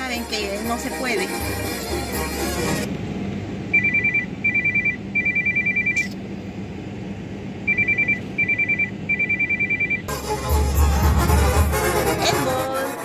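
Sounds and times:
low car cabin hum: 0.0s - 13.0s
two-tone electronic ringtone trill: 3.8s - 6.1s, 7.7s - 10.8s.

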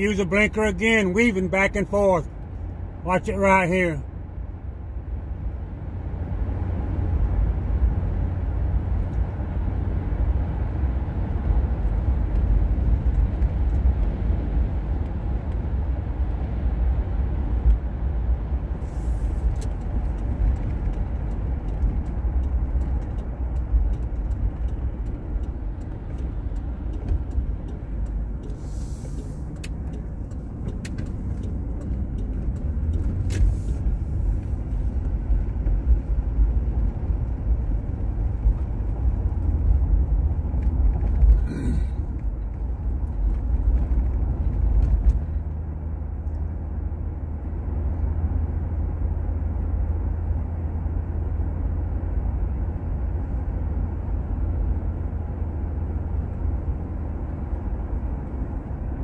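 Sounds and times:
car road noise rumble: 0.0s - 59.0s
light ticks: 19.6s - 35.2s.

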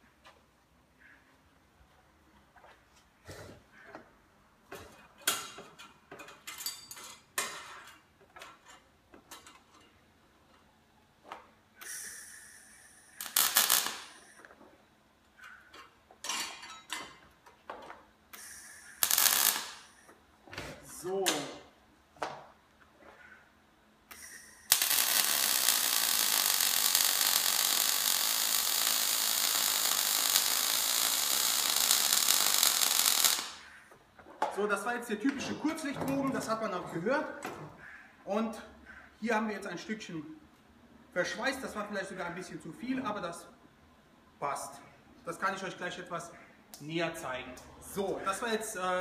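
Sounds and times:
brief hiss: 11.8s - 13.2s, 18.3s - 19.1s
welding arc crackling: 11.8s - 14.6s, 18.3s - 20.1s, 24.1s - 33.8s.

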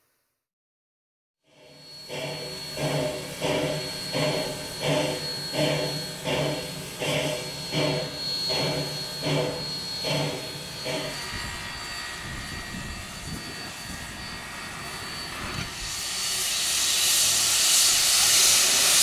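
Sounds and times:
steam air pump working: 1.5s - 19.0s
steam hissing: 1.5s - 19.0s
thin high whistling tone: 1.7s - 19.0s.

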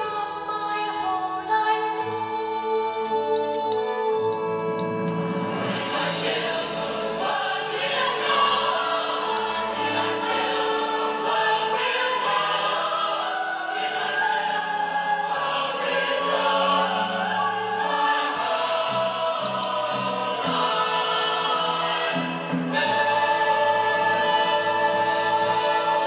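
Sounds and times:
choir singing held notes: 0.0s - 26.0s.

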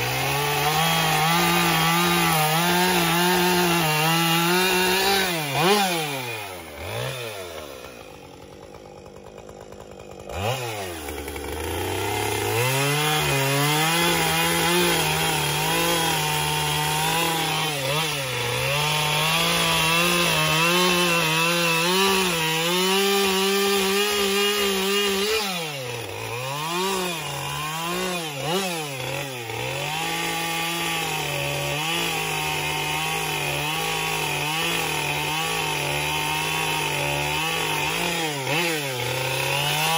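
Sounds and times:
chainsaw cutting wood: 0.0s - 39.9s.

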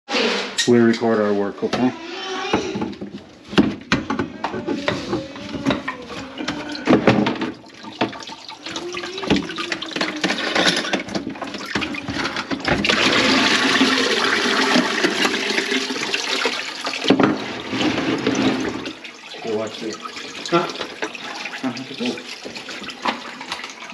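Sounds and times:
pipe fittings and bucket clattering: 0.6s - 23.9s
water pouring into bucket: 4.9s - 23.9s.

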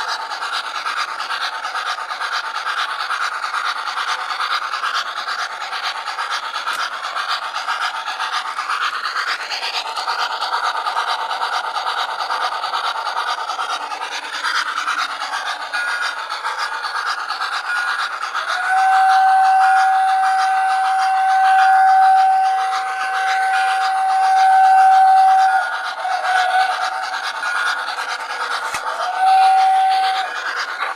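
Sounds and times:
model trains rattling on track: 0.0s - 30.9s
model steam whistle blowing: 17.7s - 30.9s.

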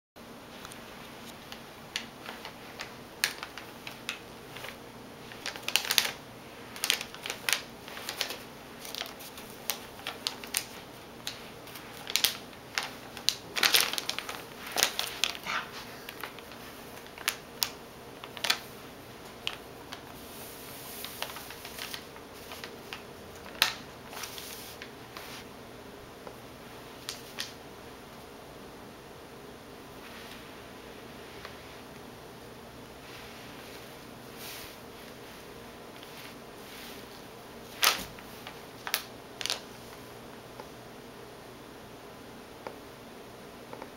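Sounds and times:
faint steady hiss: 0.2s - 43.9s
paper crinkling and rustling: 0.6s - 25.5s, 26.9s - 27.6s, 33.0s - 40.0s.

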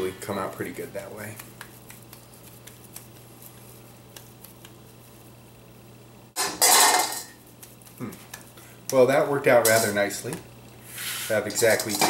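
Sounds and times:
metal bowl clattering on stone: 6.4s - 7.4s, 11.5s - 12.0s.

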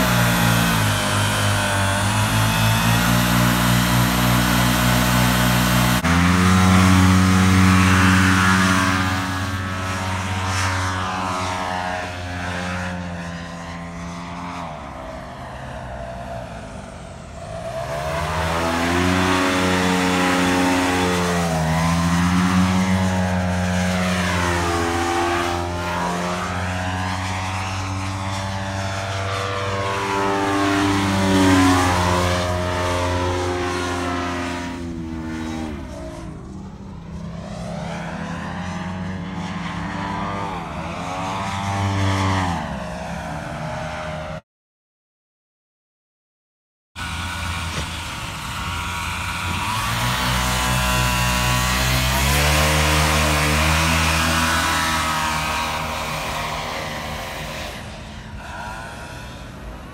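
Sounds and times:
paramotor engine and propeller: 0.0s - 44.4s, 47.0s - 59.9s.

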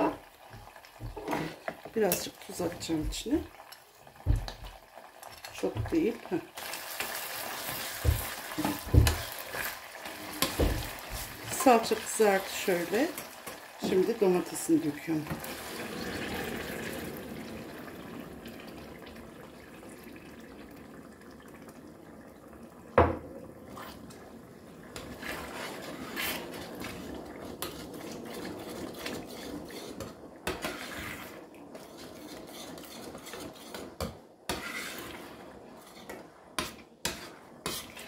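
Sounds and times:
metal spoon scraping saucepan: 25.0s - 38.0s.

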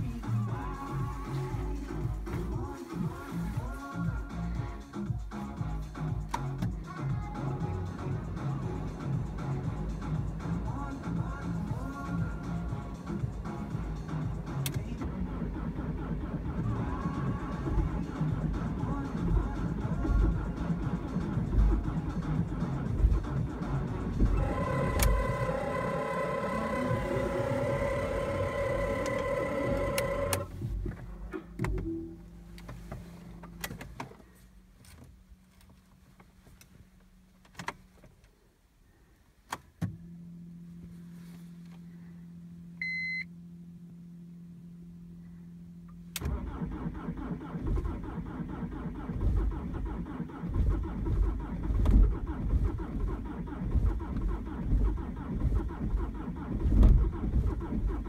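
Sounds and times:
diesel engine running unevenly: 0.0s - 32.0s
steady low hum: 0.0s - 58.0s
short beep: 42.8s - 43.3s.

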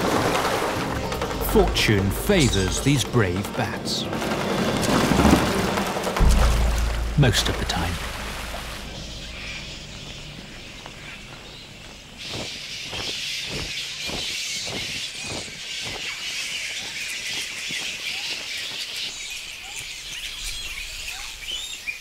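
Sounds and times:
high outdoor hiss: 5.5s - 15.4s.

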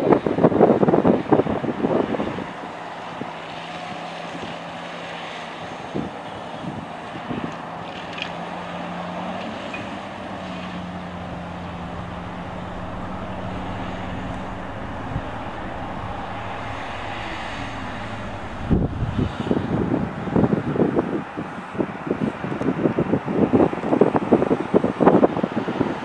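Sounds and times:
heavy diesel engines droning: 7.9s - 20.2s.

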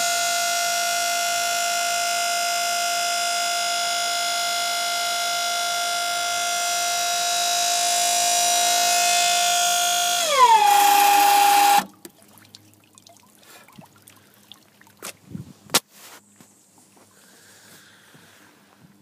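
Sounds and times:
electric motor whining: 0.0s - 11.9s
faint water sounds: 11.9s - 15.3s.

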